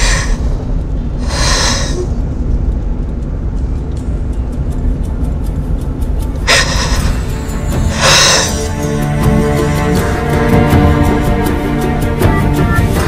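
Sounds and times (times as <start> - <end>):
car road rumble: 0.0 - 8.0.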